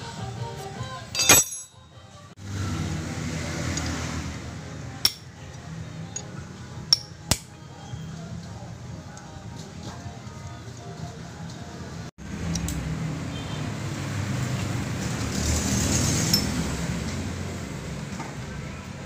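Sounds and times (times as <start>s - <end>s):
metal parts clinking: 1.2s - 1.8s.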